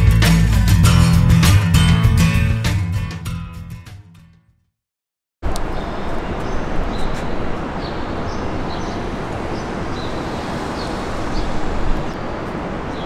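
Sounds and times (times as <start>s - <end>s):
steady rushing noise: 5.4s - 13.0s
small birds chirping: 5.6s - 13.0s.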